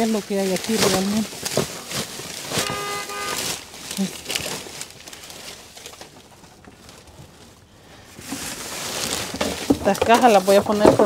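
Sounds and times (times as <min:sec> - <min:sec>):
rustling and knocking of junk: 0:00.0 - 0:11.0
short steady pitched tone: 0:02.6 - 0:03.6.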